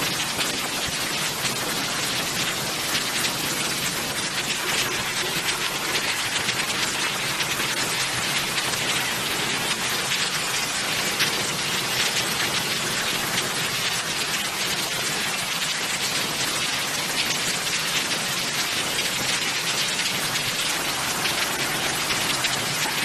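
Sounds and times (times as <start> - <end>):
falling rain hiss: 17.2 - 23.0.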